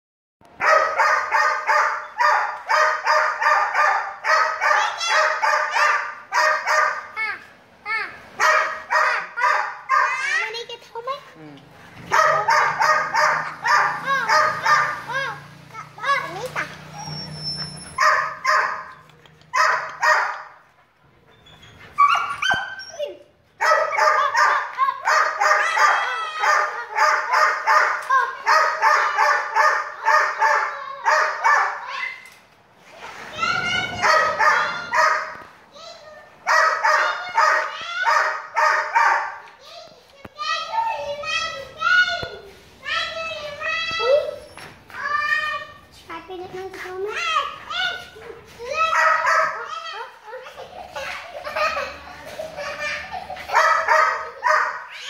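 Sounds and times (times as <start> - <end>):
puppy barking: 0.6 - 7.2, 8.4 - 10.4, 12.0 - 15.4, 16.0 - 20.6, 22.0 - 32.0, 33.9 - 35.4, 36.4 - 39.5, 47.9 - 49.8, 53.4 - 55.0
puppy yelping: 16.0 - 20.4, 21.3 - 32.2, 33.5 - 35.4
dog whining yelp: 16.4 - 18.7, 21.3 - 23.2.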